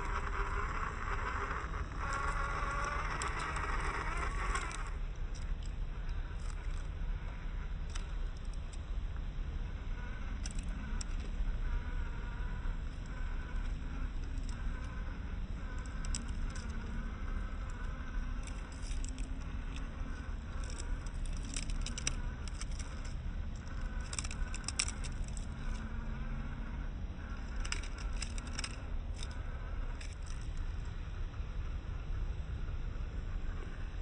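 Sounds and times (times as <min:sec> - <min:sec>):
tyres crunching over loose rocks: 0:20.6 - 0:25.8.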